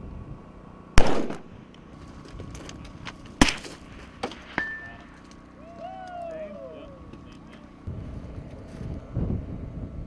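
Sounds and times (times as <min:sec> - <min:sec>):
rifle shots: 0:01.0 - 0:01.6, 0:03.4 - 0:04.7.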